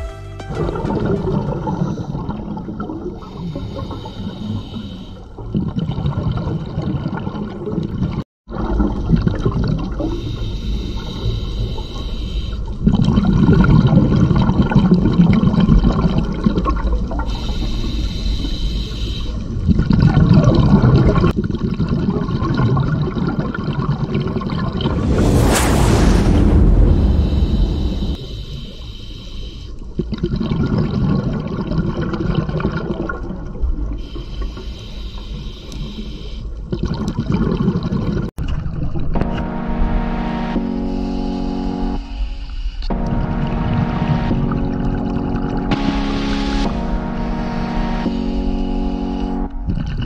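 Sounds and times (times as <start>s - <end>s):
underwater rushing bubbling water: 0.6s - 3.3s, 5.4s - 10.3s, 12.8s - 17.3s, 19.6s - 28.2s, 30.0s - 34.0s, 36.7s - 39.1s.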